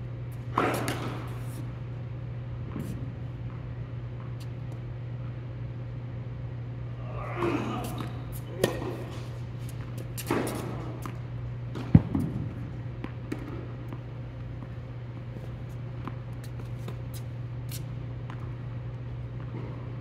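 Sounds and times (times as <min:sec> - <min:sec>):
steady low hum: 0:00.0 - 0:20.0
tennis ball hits echoing: 0:00.5 - 0:01.4, 0:07.8 - 0:09.3.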